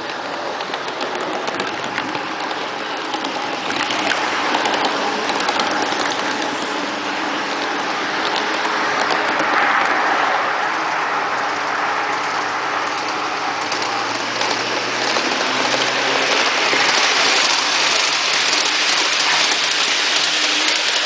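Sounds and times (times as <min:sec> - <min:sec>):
model train wheels hissing on track: 0:00.0 - 0:21.0.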